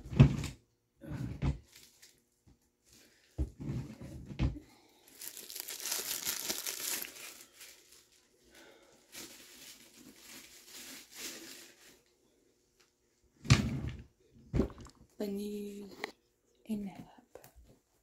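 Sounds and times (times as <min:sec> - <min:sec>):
packaging crinkling and tearing: 0:05.0 - 0:08.3, 0:09.1 - 0:12.0.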